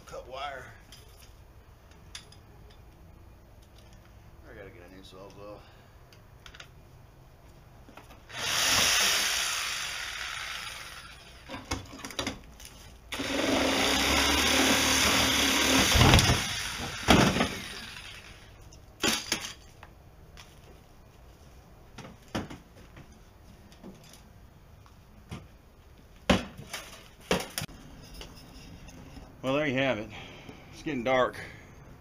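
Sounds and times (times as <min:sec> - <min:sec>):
reciprocating saw cutting metal: 0:08.3 - 0:11.5.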